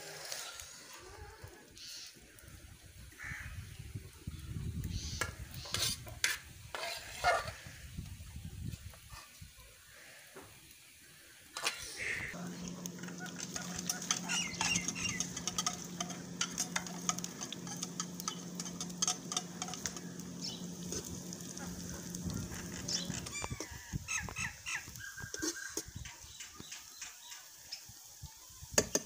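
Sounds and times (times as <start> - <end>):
food crackling in hot oil: 0.0 - 29.0
metal spatula stirring in pan: 5.6 - 7.6, 11.6 - 23.8
steady low hum: 12.0 - 23.8.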